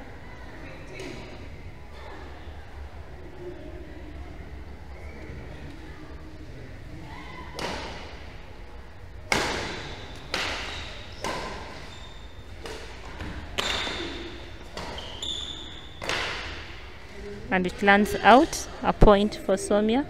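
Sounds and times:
racket hitting shuttlecock: 0:07.6 - 0:08.2, 0:09.3 - 0:11.9, 0:12.6 - 0:15.0, 0:16.0 - 0:16.8.

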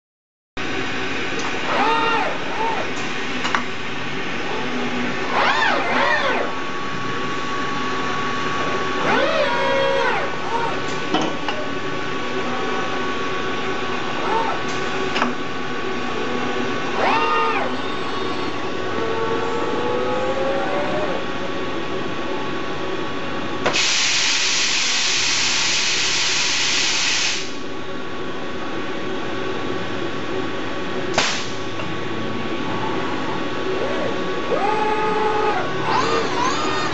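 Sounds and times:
steady machine noise: 0:00.6 - 0:36.9
servo motors whining: 0:01.6 - 0:02.9, 0:04.5 - 0:06.6, 0:09.0 - 0:10.8, 0:16.9 - 0:21.2, 0:32.8 - 0:36.9
compressed air hissing: 0:23.7 - 0:27.6
short sharp air burst: 0:23.7 - 0:27.6, 0:31.2 - 0:31.6.

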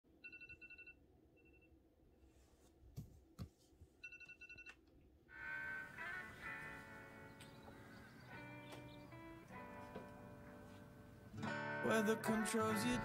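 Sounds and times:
smartphone alarm beeping: 0:00.2 - 0:01.7, 0:04.0 - 0:04.8
background music: 0:05.4 - 0:13.0.

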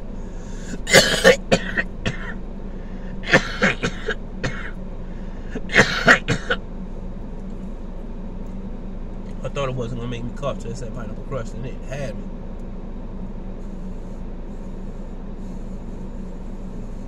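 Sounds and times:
man coughing into sleeve: 0:00.7 - 0:02.4, 0:03.2 - 0:04.8, 0:05.6 - 0:06.6.

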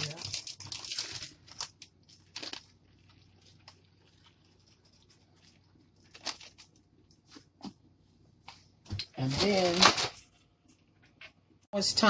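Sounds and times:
cheese rustling: 0:00.0 - 0:07.6, 0:09.2 - 0:10.5.

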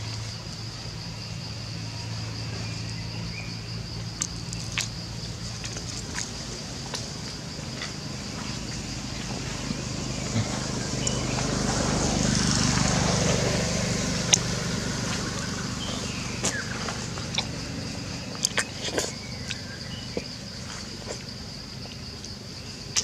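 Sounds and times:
vehicle engine passing by: 0:06.4 - 0:20.8.

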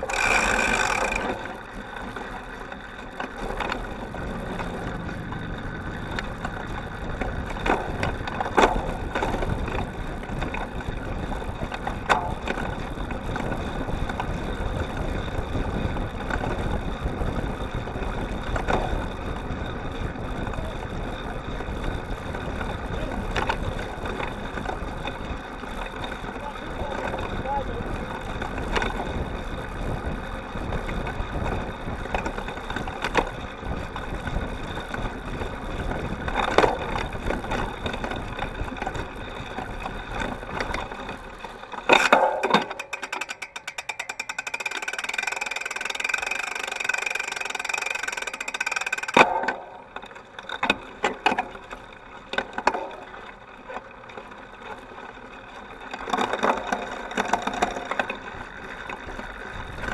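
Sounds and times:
bike tyres rumbling on dirt: 0:00.0 - 0:59.9
rattling bike drivetrain: 0:00.0 - 0:59.9
bike knocking over bumps: 0:03.1 - 0:19.6, 0:28.2 - 0:53.1.

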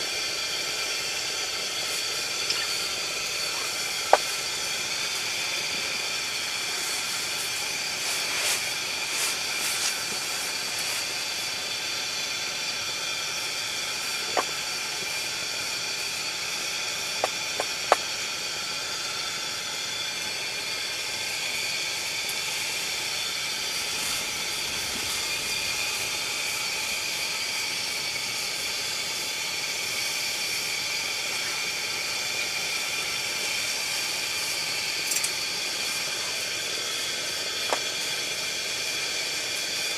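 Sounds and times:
pressure lantern burner hiss: 0:00.0 - 0:39.9.

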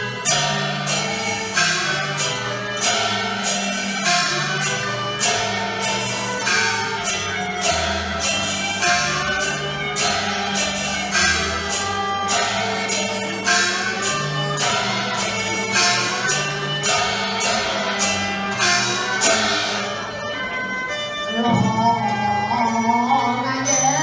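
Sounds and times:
opera ensemble music: 0:00.0 - 0:24.0
sharp percussion strokes: 0:00.0 - 0:24.0.

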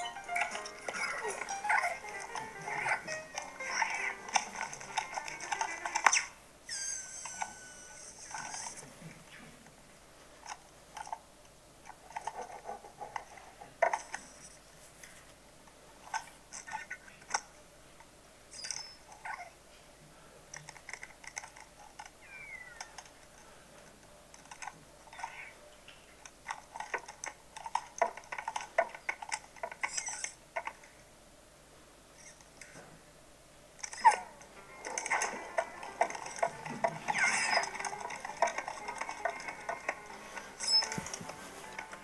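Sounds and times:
metallic squeaks of lamp joints: 0:35.1 - 0:41.3.

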